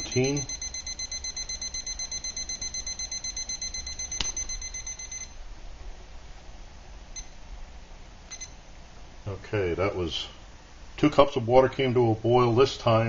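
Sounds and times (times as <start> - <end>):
thermometer alarm beeping: 0.0 - 5.4, 7.1 - 7.4, 8.3 - 8.6
sharp click: 4.2 - 4.4.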